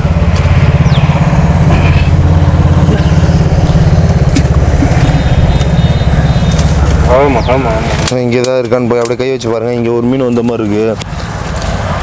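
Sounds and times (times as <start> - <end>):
small engine chugging: 0.0 - 9.4.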